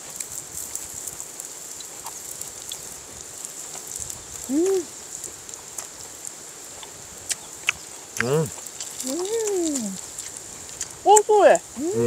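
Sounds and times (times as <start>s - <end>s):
food sizzling on griddle: 0.0s - 12.0s
person humming: 4.5s - 4.9s, 8.2s - 8.5s, 9.1s - 10.0s, 11.8s - 12.0s.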